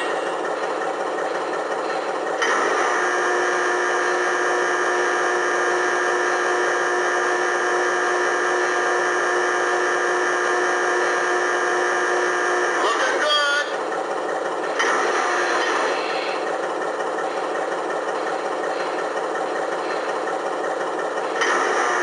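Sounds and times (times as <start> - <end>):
electric motor whining: 2.4 - 13.1.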